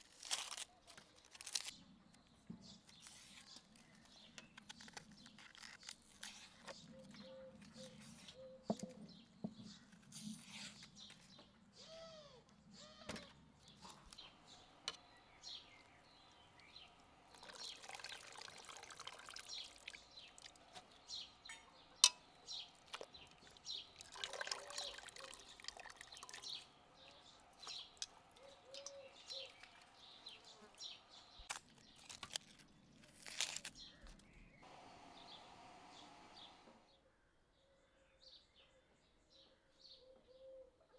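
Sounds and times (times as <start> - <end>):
birds chirping: 1.8 - 33.0
water splashing and dripping: 17.3 - 20.8, 22.8 - 26.6.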